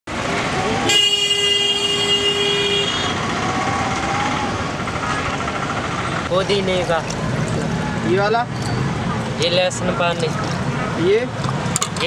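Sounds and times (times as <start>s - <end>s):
road traffic noise: 0.0s - 12.0s
vehicle horn steady note: 0.9s - 3.2s.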